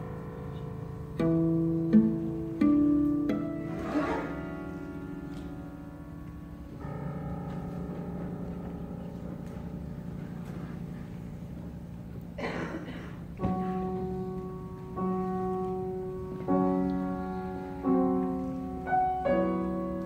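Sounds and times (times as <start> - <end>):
grand piano chords: 0.0 - 20.0.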